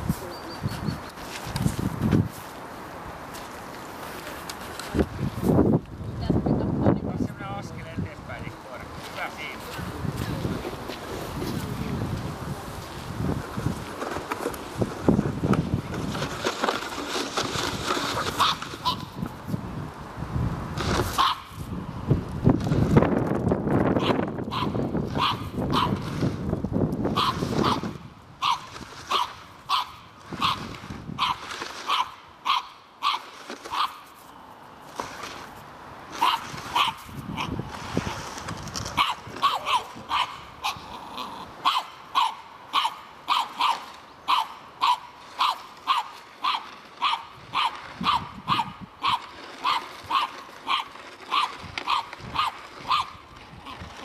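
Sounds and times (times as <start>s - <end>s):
dog barking sharply: 41.6s - 53.1s.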